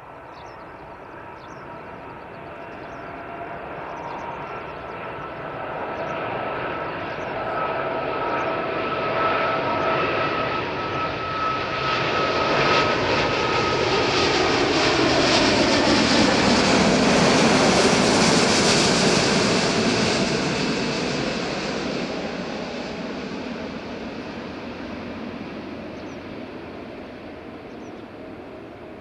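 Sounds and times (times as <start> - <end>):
jet airliner passing overhead: 0.0 - 29.0.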